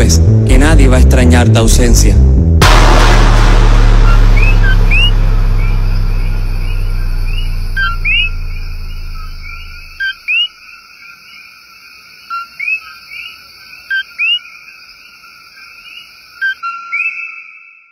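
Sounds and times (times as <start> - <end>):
low drone: 2.6 - 10.0
distant frog chorus: 7.1 - 17.9.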